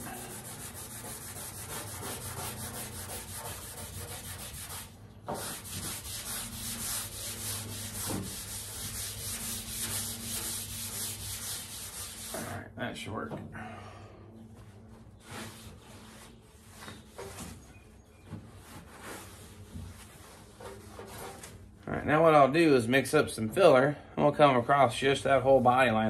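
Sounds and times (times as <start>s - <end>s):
sandpaper rubbing on metal: 0.0s - 12.4s, 18.7s - 21.5s.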